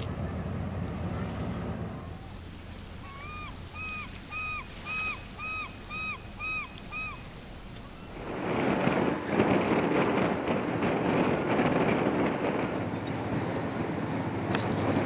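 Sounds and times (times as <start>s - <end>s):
bird calling: 2.1s - 8.3s
wind on microphone: 3.0s - 15.0s.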